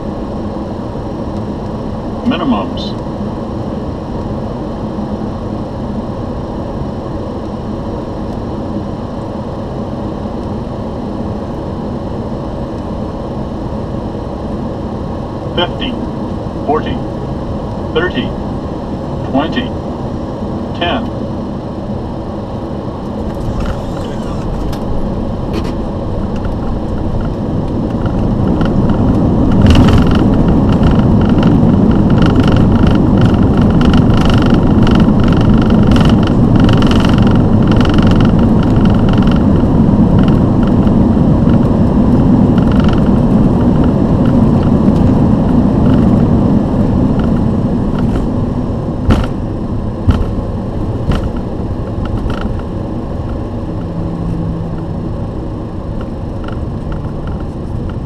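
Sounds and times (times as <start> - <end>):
faint high whine: 0.0 - 43.6
jet engine and airflow rumble: 0.0 - 58.0.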